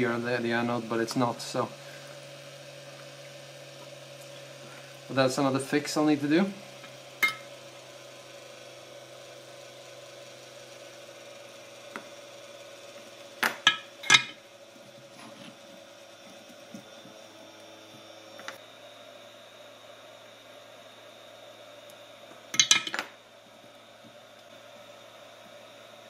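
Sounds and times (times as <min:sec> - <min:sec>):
small tools clicking and clinking: 0:13.4 - 0:14.4, 0:22.5 - 0:23.1.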